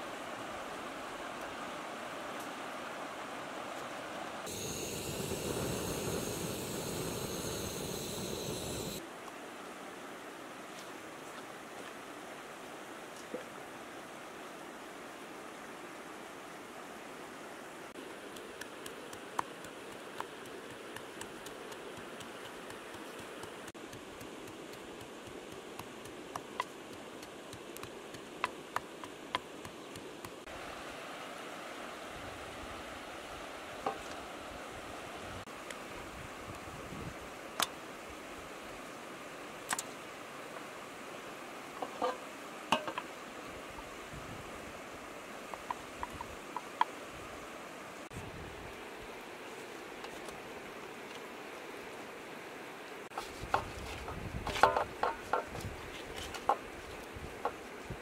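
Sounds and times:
river water flowing: 0.0s - 4.6s, 9.0s - 36.0s
steady background hiss: 0.0s - 58.0s
fire crackling and hissing: 4.4s - 9.0s, 17.9s - 28.4s.

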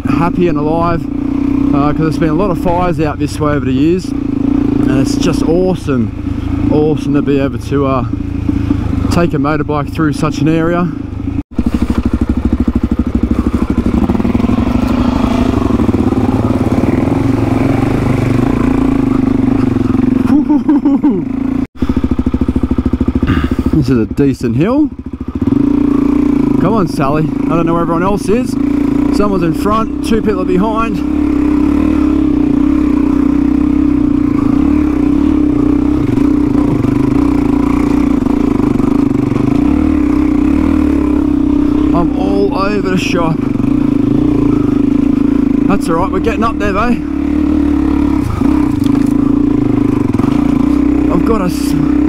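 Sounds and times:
dirt bike engine running: 0.0s - 52.0s.

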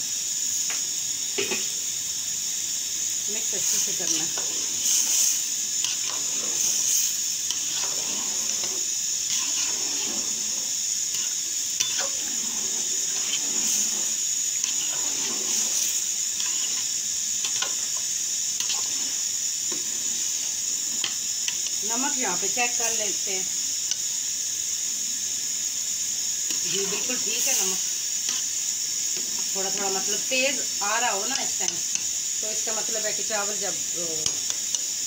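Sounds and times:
steady hiss: 0.0s - 35.0s
ladle scraping metal pot: 5.8s - 18.0s, 18.6s - 19.2s.

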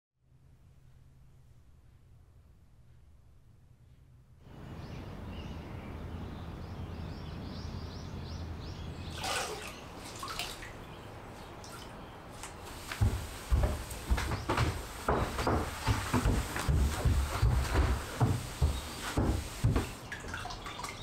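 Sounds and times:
bird chirping: 4.4s - 10.0s
water splashing into bucket: 9.1s - 10.9s, 11.6s - 13.1s, 19.0s - 21.0s
cloth rubbing on wooden floor: 12.4s - 20.0s.

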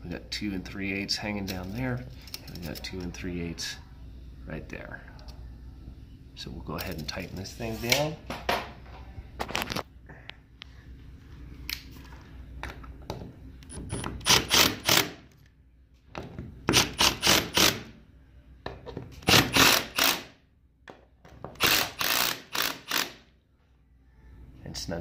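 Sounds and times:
cordless driver tightening bolts: 21.6s - 23.2s.

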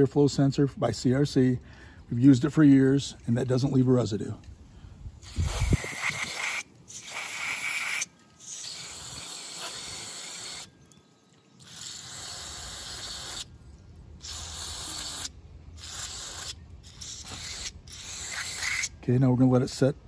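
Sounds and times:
aerosol spray hissing: 5.2s - 10.7s, 11.7s - 13.5s, 14.2s - 18.9s.

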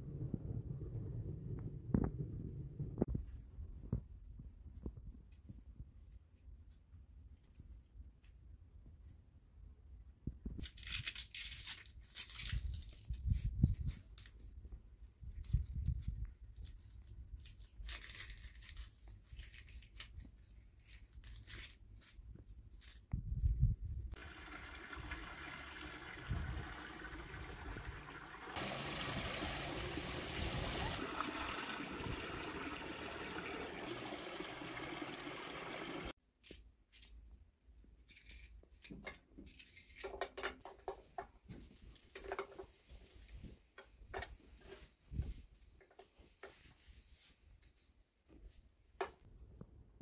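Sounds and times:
water pouring from a pipe: 24.2s - 36.1s.

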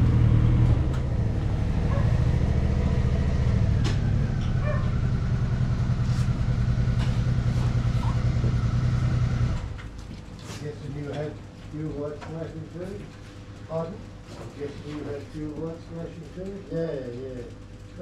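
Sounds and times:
motorcycle engine idling: 0.8s - 9.8s.

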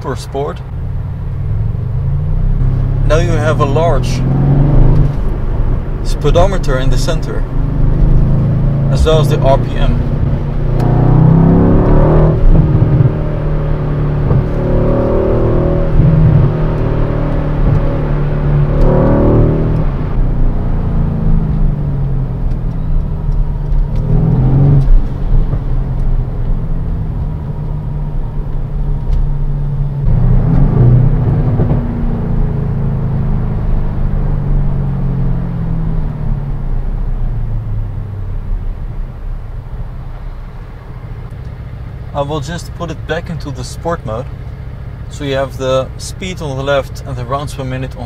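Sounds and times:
car engine accelerating: 0.0s - 48.0s.

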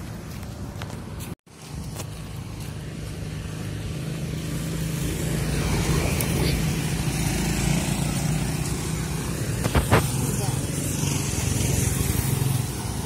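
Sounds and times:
motorcycle engine passing: 4.0s - 13.0s.

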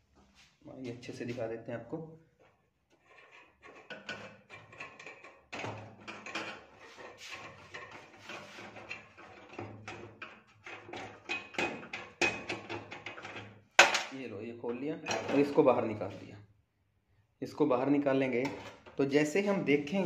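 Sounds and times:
metal tool scraping and tapping: 2.9s - 14.1s, 18.4s - 19.0s.

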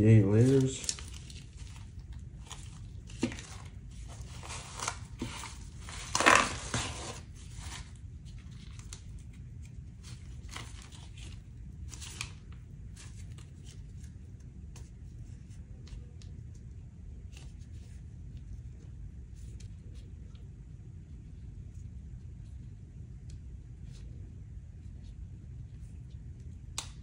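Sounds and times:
plastic and fabric rustling: 0.0s - 14.2s.

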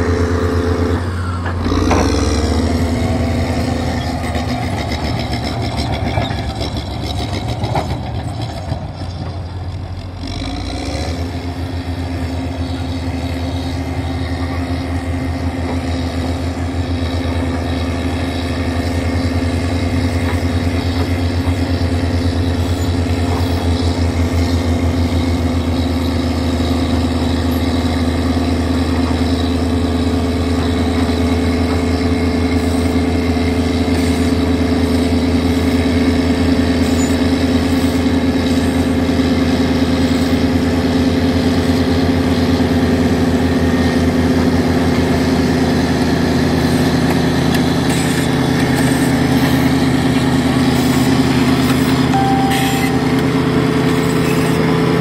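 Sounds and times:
bulldozer diesel engine running: 0.0s - 55.0s.

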